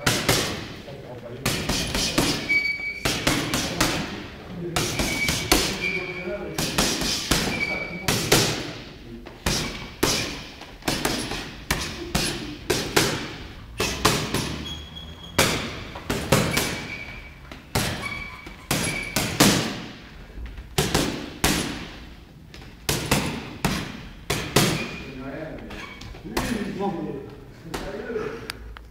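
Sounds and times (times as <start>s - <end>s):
gloves punching heavy bag: 1.5s - 4.2s, 4.8s - 8.8s, 9.4s - 14.7s, 15.4s - 17.0s, 17.6s - 20.0s, 20.8s - 22.0s, 22.8s - 25.0s.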